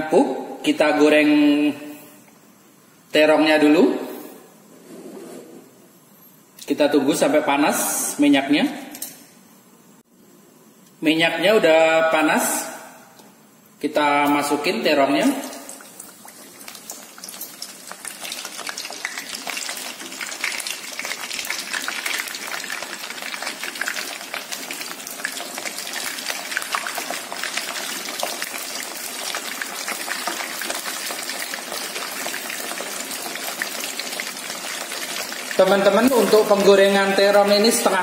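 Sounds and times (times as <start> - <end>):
eggplant sizzling in hot oil: 15.0 - 38.0.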